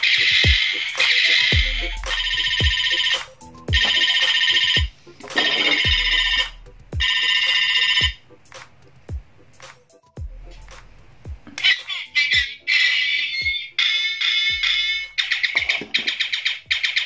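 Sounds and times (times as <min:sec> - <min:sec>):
toy robot buzzy beeping phrase: 0:05.4 - 0:08.2, 0:11.6 - 0:17.0.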